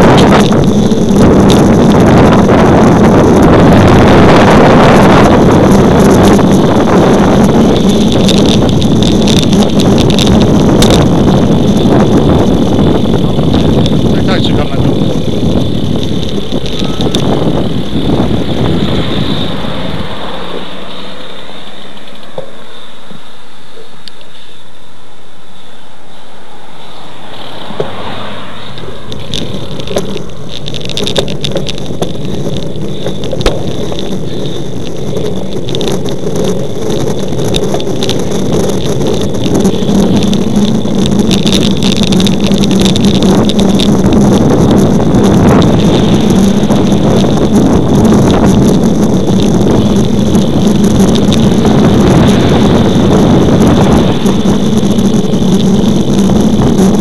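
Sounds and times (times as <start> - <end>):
tyre and road noise: 0.0 - 57.0
wind rushing over microphone: 0.0 - 57.0
sharp knocks from road bumps: 27.3 - 56.0.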